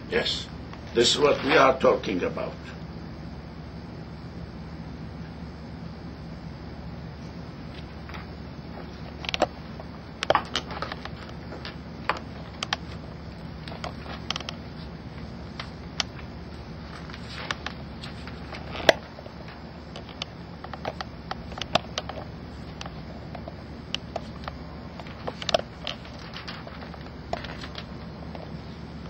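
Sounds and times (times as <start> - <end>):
steady low hum: 0.0 - 29.0
paper rustling and pages turning: 10.2 - 28.9.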